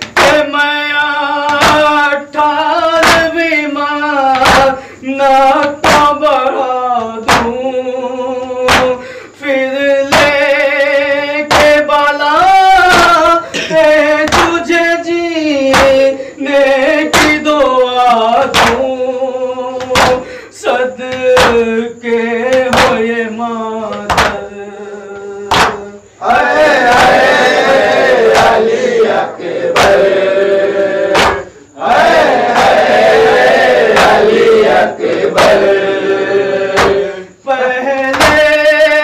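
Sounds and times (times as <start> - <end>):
man singing a lament: 0.0 - 39.0
hands slapping chests: 1.4 - 2.0, 4.2 - 4.8, 7.0 - 7.6, 8.7 - 9.1, 11.5 - 11.8, 14.3 - 14.6, 15.7 - 16.1, 17.1 - 17.5, 18.5 - 18.9, 19.8 - 20.4, 21.1 - 21.7, 22.5 - 23.0, 23.9 - 24.4, 25.5 - 25.9, 26.8 - 28.9, 29.7 - 30.1, 31.1 - 31.6, 33.8 - 34.5, 35.1 - 35.7, 36.7 - 37.1, 38.1 - 38.5.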